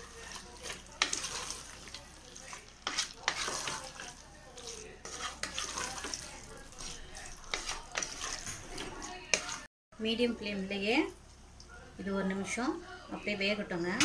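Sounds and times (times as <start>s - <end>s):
food sizzling in oil: 0.0s - 9.7s
ladle scraping a pot: 0.0s - 9.7s.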